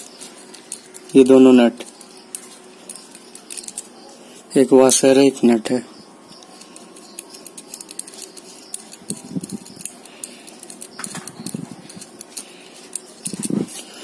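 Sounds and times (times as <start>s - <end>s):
nut turned on threaded shaft: 6.4s - 13.6s.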